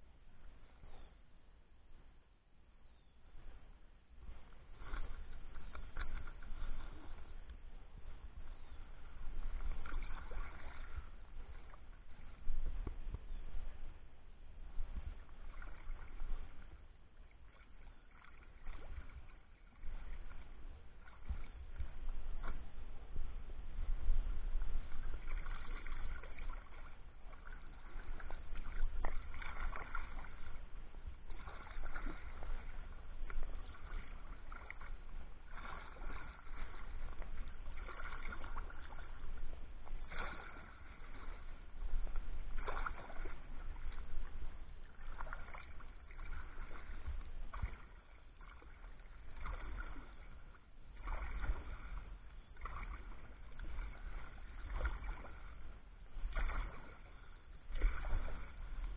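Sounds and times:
paddle splashing in water: 0.0 - 1.3, 3.2 - 58.9
low rumble: 3.4 - 48.0.

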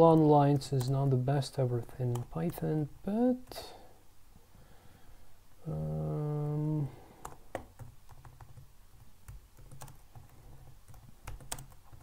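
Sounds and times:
person humming: 5.6 - 7.1
typing on keyboard: 7.2 - 12.0.

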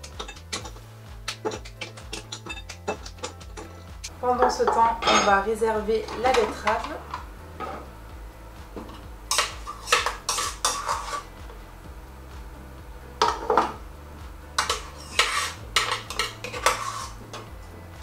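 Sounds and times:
utensil scraping a metal bowl: 0.0 - 3.8, 9.3 - 11.3, 14.6 - 17.5.

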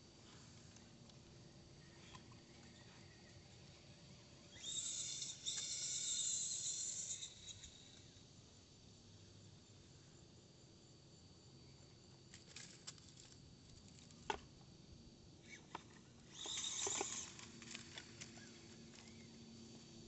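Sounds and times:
light clicks of toy car: 15.5 - 19.3.

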